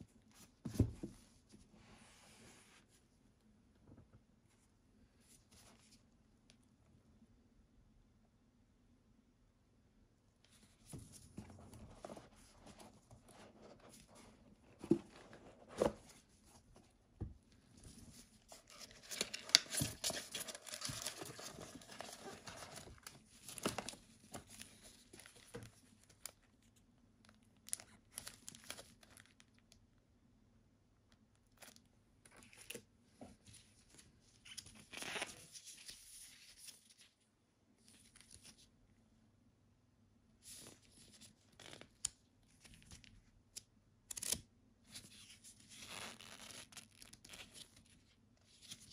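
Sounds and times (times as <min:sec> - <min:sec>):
paper and cardboard rustling: 0:10.6 - 0:17.0, 0:17.6 - 0:26.4.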